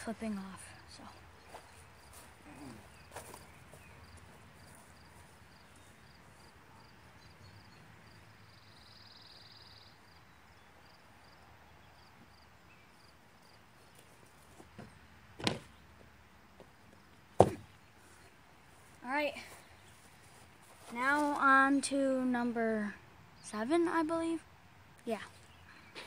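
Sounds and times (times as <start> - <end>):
cricket chirping: 0.7 - 14.0
footsteps on grass: 1.4 - 6.6, 17.4 - 21.5.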